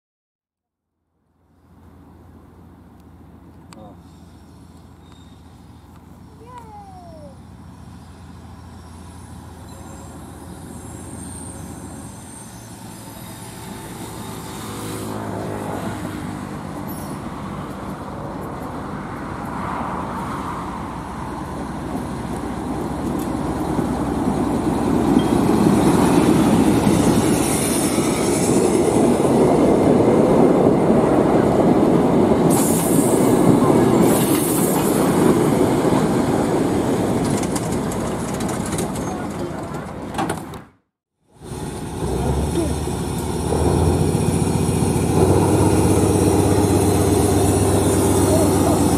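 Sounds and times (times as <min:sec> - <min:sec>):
diesel locomotive engine: 0:01.2 - 0:48.9
wheel squeals: 0:04.0 - 0:15.0, 0:16.8 - 0:17.3, 0:37.1 - 0:40.6
train wheels clattering on rails: 0:32.4 - 0:40.7.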